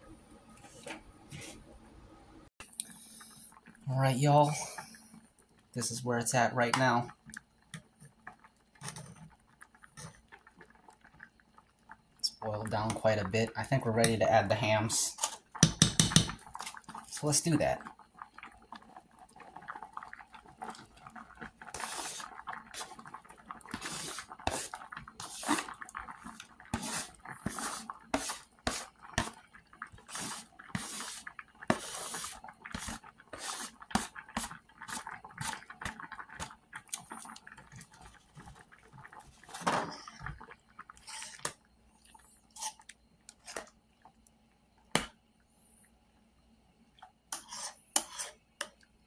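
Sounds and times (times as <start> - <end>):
metal utensil scraping cookware: 47.3 - 48.3.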